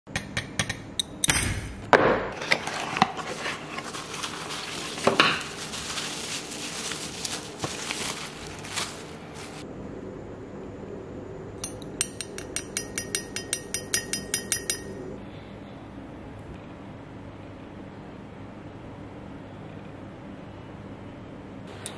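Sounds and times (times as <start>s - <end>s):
bubble wrap rustling: 2.4s - 9.6s.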